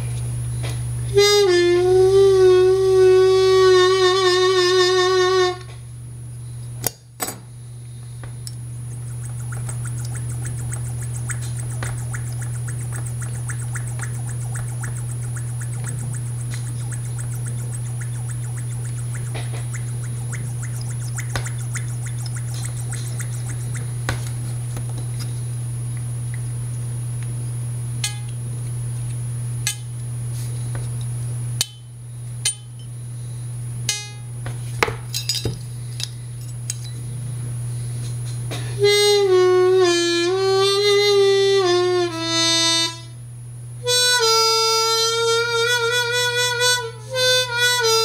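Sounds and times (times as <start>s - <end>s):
steady low hum: 0.0s - 48.0s
harmonica notes bending: 1.1s - 5.7s, 8.8s - 24.1s, 38.8s - 43.1s, 43.8s - 48.0s.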